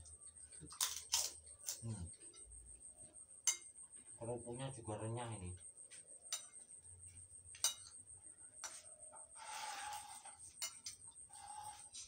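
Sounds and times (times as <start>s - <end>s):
spoons clicking against plates: 3.5s - 3.7s, 7.6s - 8.0s, 10.6s - 11.0s.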